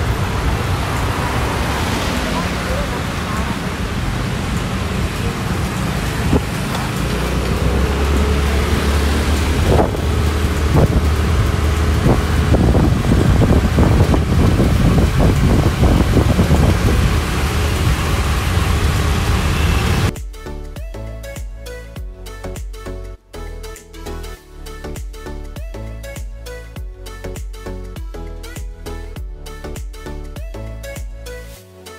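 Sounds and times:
wind rushing over microphone: 0.0 - 20.1
engine and road rumble: 0.0 - 31.6.

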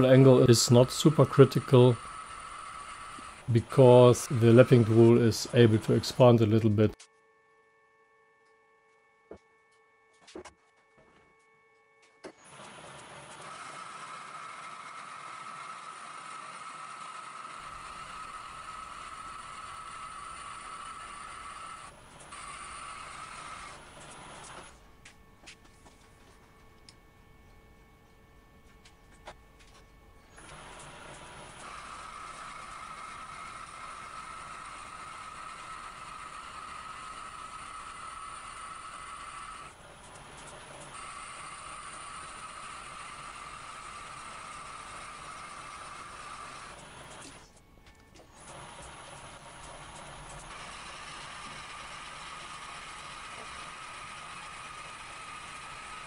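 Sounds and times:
metal lathe running: 0.0 - 6.6, 12.5 - 24.7, 30.4 - 47.5, 48.4 - 56.0.

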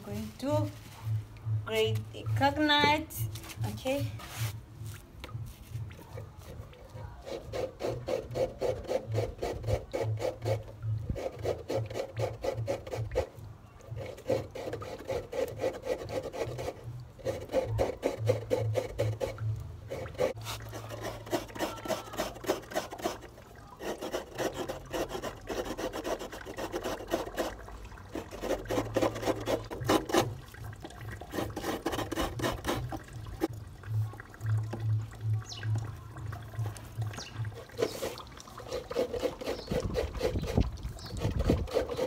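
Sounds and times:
coconut rasping on a grater: 6.4 - 33.5, 36.6 - 42.0.

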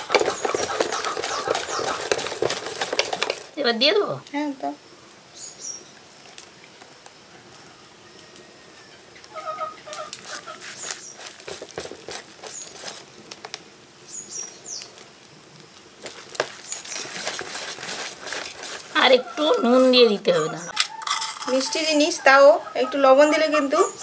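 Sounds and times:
whisk scraping steel bowl: 0.0 - 3.5, 10.1 - 13.0, 16.4 - 20.2.

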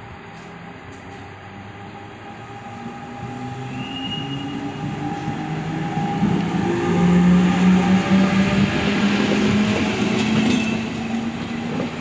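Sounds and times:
rail and wheel noise: 0.0 - 12.0
electric locomotive motors humming: 0.6 - 12.0.

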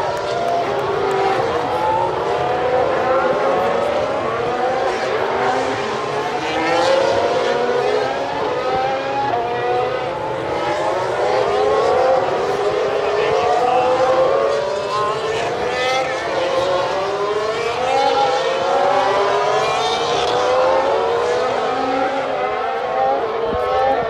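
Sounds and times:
racing car engines revving: 0.0 - 24.0.

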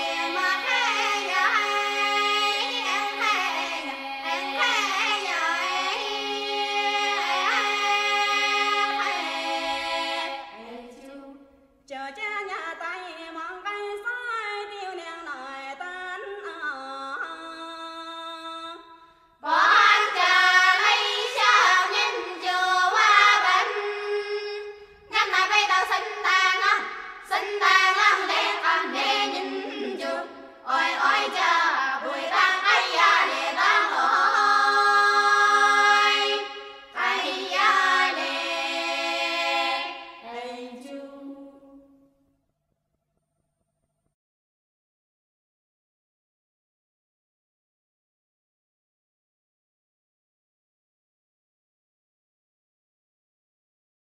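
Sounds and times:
a cappella folk chorus singing: 0.0 - 12.2, 19.4 - 42.1.

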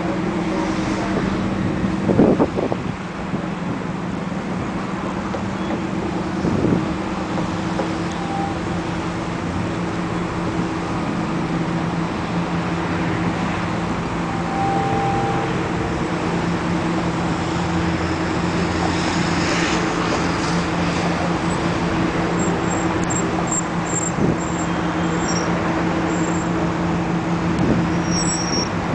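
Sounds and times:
engine rumble: 0.0 - 28.9.

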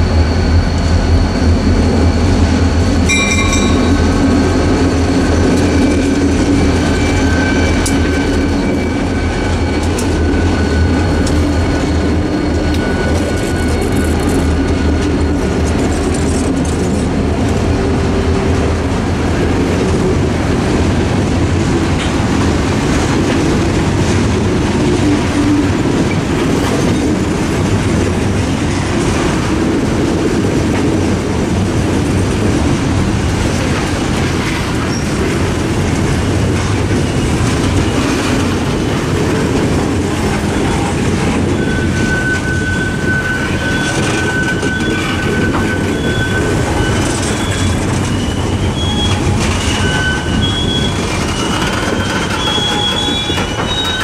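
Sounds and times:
rumble of train wheels on rail: 0.0 - 54.0
high wheel squeal: 3.1 - 15.0, 39.9 - 54.0
clickety-clack over rail joints: 5.3 - 54.0.

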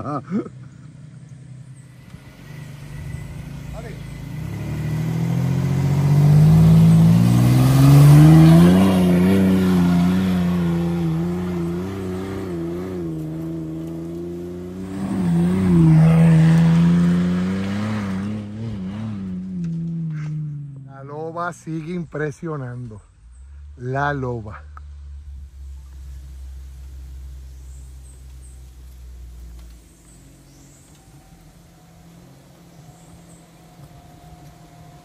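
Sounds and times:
engine revving hard: 2.6 - 20.8.

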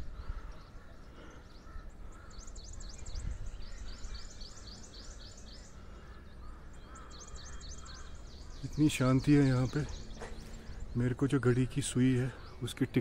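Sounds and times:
wind rumble on microphone: 0.0 - 0.7, 2.6 - 4.4
small birds chirping: 0.0 - 13.0.

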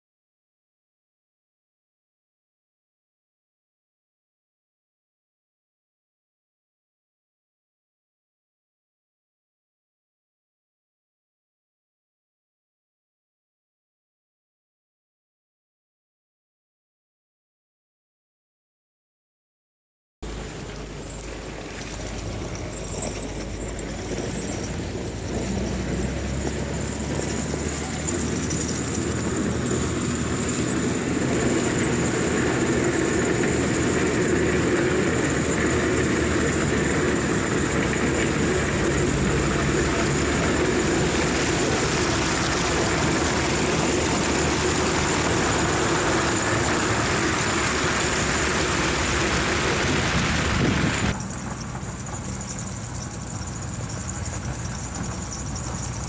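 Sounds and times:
grader diesel engine running: 20.2 - 56.0.

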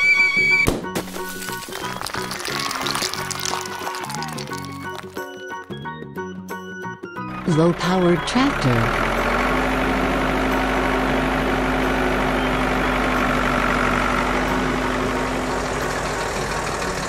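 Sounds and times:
vehicle engine idling: 7.2 - 17.0.

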